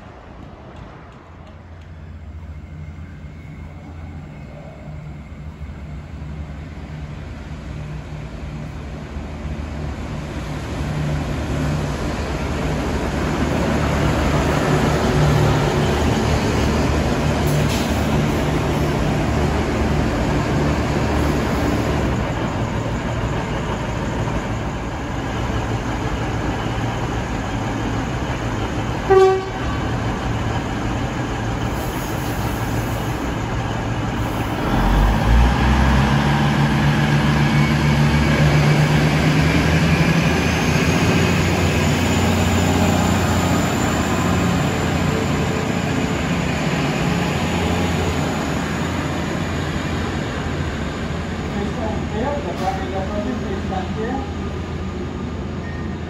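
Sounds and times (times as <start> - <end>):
diesel train engines throttling: 0.0 - 56.0
short train horn toot: 29.1 - 29.7.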